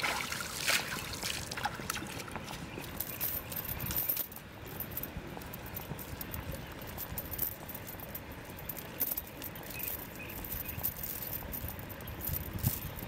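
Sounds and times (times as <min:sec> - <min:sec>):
metal chain clinking and rattling: 0:02.8 - 0:13.0.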